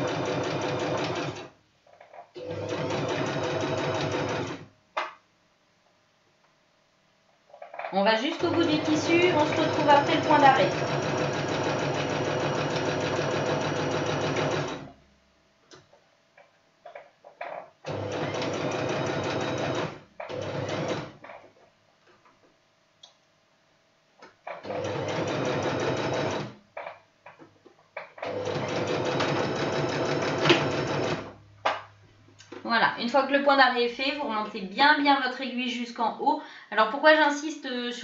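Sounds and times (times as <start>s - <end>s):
electric sewing machine stitching: 0.0s - 1.5s, 2.4s - 4.7s, 8.3s - 14.9s, 17.9s - 21.2s, 24.6s - 26.6s, 28.2s - 31.4s.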